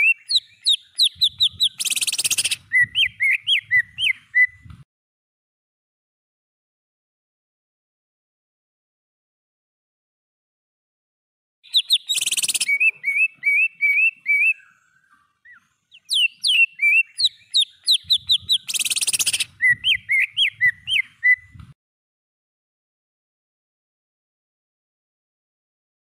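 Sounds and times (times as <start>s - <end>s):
bird whistling song: 0.0s - 4.8s, 11.6s - 21.7s
bird harsh rasp: 1.4s - 2.6s, 15.5s - 21.4s.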